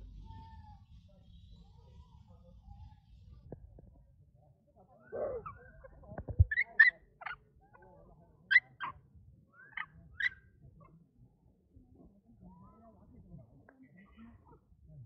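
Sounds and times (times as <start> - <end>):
monkeys squeaking: 6.5 - 7.4.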